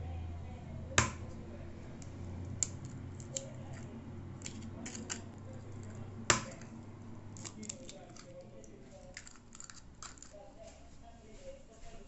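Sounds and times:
eggshell clicks and taps: 0:02.0 - 0:06.7, 0:07.4 - 0:10.4
egg cracking on bowl rim: 0:02.0 - 0:10.4.

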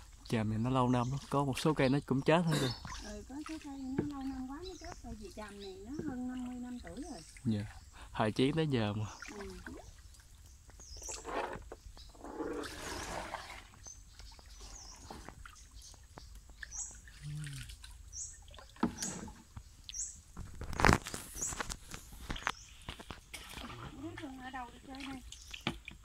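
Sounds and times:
bird chirping: 0:00.2 - 0:13.0, 0:13.8 - 0:20.3
paddle splashing in water: 0:02.7 - 0:08.0, 0:09.1 - 0:26.0.

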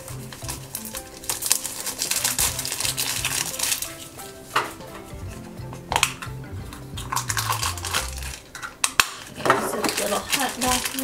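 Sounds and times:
background music: 0:00.0 - 0:11.0
plastic wrapping crackling: 0:00.0 - 0:11.0.

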